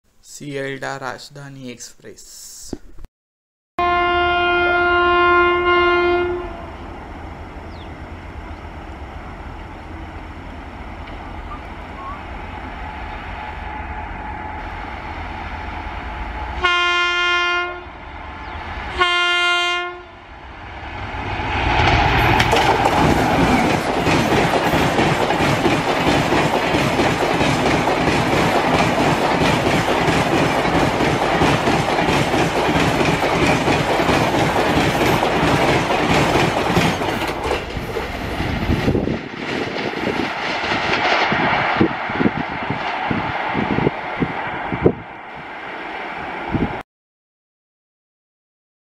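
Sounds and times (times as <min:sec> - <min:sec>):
train horn blasts: 0:03.8 - 0:06.8, 0:16.5 - 0:18.0, 0:18.9 - 0:20.2
train low rumble: 0:03.8 - 0:46.8
train coaches rushing: 0:21.0 - 0:46.8
wheel clatter over rail joints: 0:22.3 - 0:40.0.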